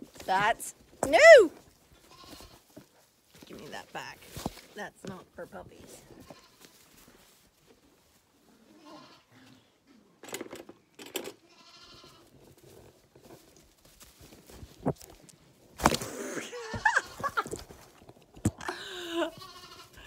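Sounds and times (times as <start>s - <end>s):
lambs bleating: 2.1s - 2.6s, 6.2s - 6.7s, 8.7s - 9.4s, 11.5s - 12.3s, 19.3s - 20.0s.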